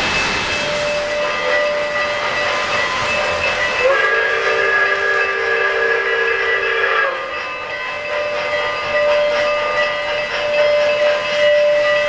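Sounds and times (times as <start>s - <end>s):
model train running on track: 0.0s - 12.0s
train whistle: 0.9s - 2.0s, 3.7s - 7.7s.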